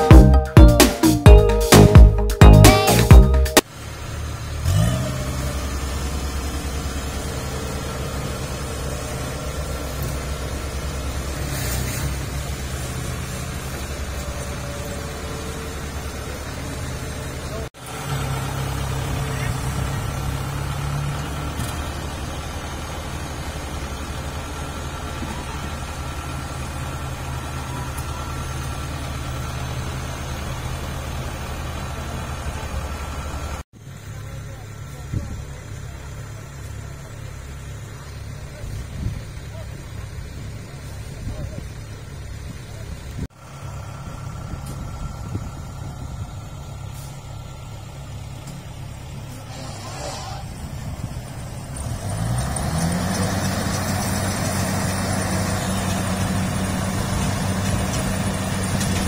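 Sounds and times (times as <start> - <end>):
diesel engine running: 0.0 - 59.0
crawler tracks rolling: 47.8 - 59.0.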